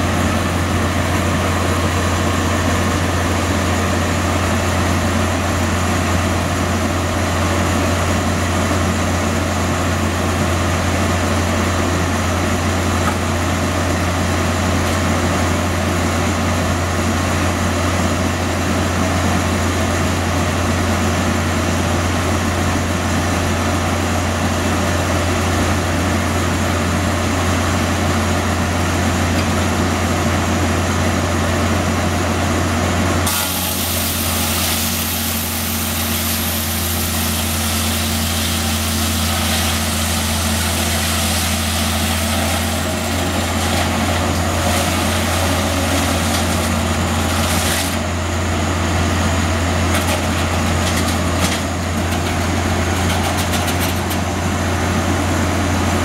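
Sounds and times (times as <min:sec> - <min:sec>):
sawmill motor running: 0:00.0 - 0:56.0
circular saw cutting log: 0:33.2 - 0:48.9.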